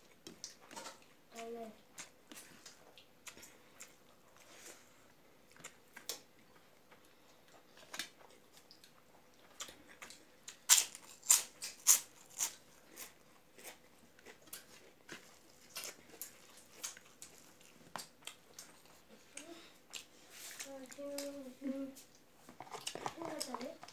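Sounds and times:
wet chewing clicks: 22.1s - 23.9s.

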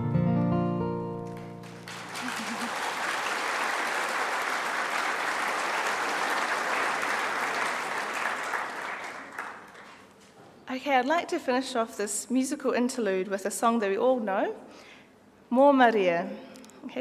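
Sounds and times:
audience applauding: 1.2s - 10.1s.

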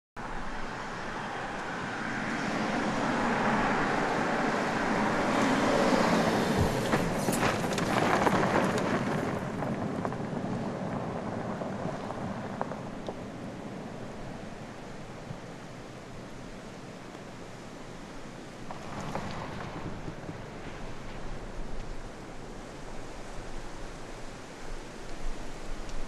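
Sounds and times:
car driving past: 18.6s - 21.3s.

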